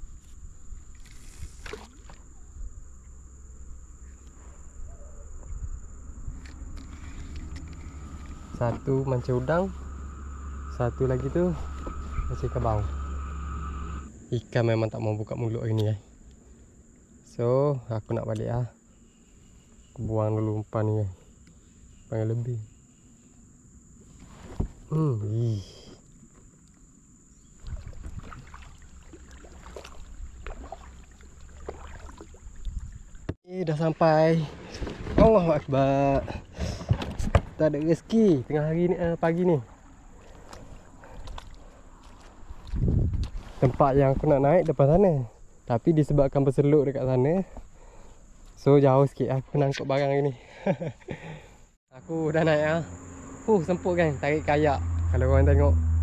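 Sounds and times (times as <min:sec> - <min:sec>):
high-pitched insect drone: 0:00.2 - 0:15.6, 0:50.6 - 0:56.0
paddle splashing water: 0:00.8 - 0:02.5, 0:27.5 - 0:33.4, 0:39.5 - 0:43.8
low rumble: 0:04.6 - 0:14.1.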